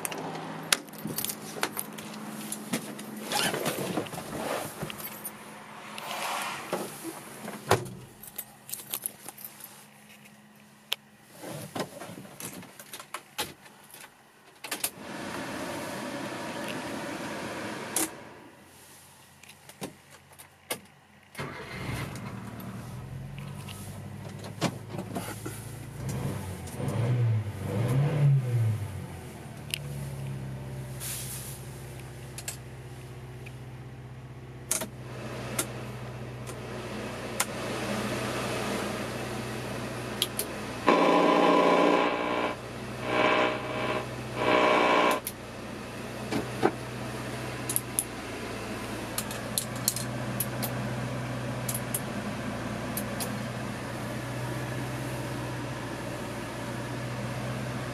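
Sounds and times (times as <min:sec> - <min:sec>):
car engine starting and idling: 0:20.6 - 0:57.9
car radio bursts: 0:40.9 - 0:45.2.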